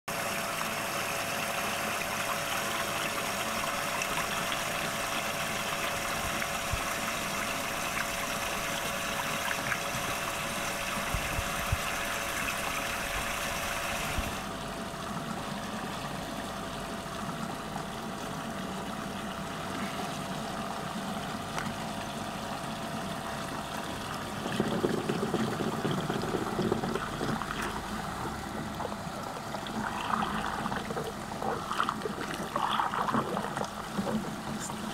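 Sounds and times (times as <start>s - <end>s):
faint steady hum: 0.1s - 34.9s
water swirling and draining: 22.8s - 34.9s.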